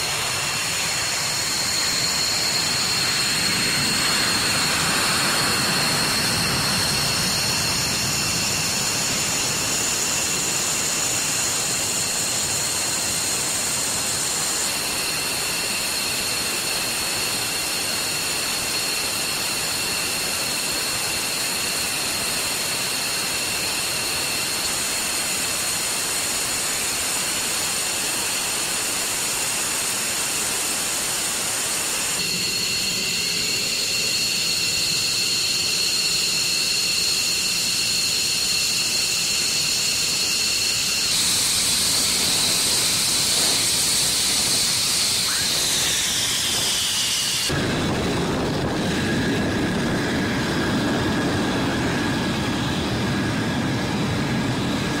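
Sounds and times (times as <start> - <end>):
jet engine whine: 0.0 - 55.0
rushing hiss: 28.7 - 47.7.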